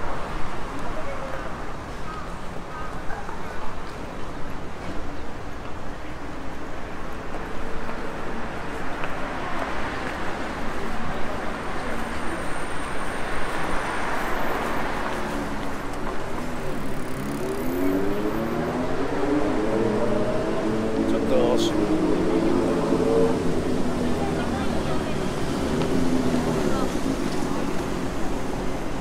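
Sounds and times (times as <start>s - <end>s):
vehicle passing: 13.8s - 29.0s.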